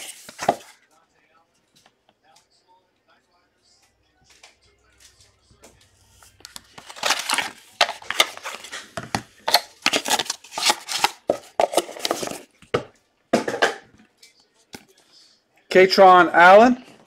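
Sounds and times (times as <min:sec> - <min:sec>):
cardboard box packaging rustling: 0:06.4 - 0:12.5.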